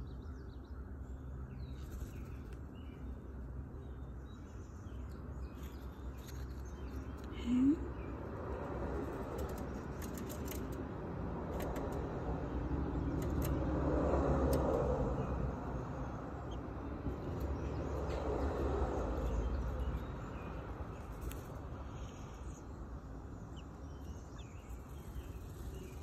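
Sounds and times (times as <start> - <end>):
vehicle passing: 8.1 - 22.3.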